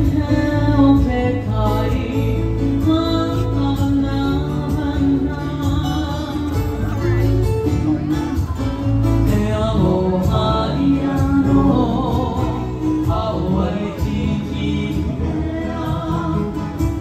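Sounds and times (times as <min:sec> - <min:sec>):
acoustic guitar: 0:00.0 - 0:17.0
person singing: 0:00.0 - 0:17.0
ukulele: 0:00.0 - 0:17.0.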